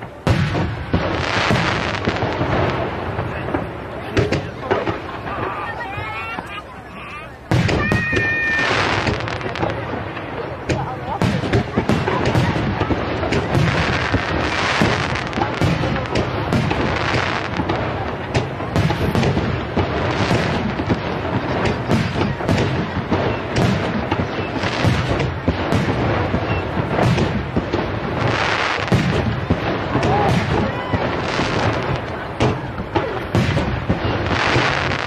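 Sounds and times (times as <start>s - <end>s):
firework crackling: 0.0s - 35.0s
firework shells bursting: 7.5s - 35.0s.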